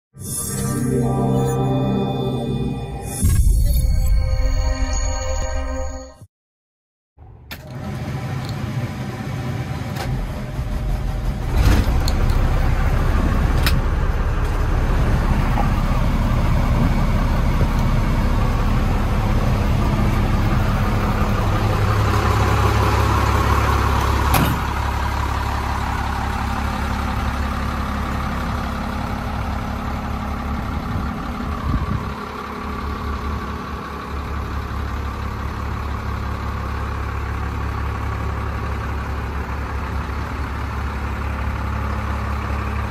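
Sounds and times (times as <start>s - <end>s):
diesel truck engine idling: 8.6s - 42.9s.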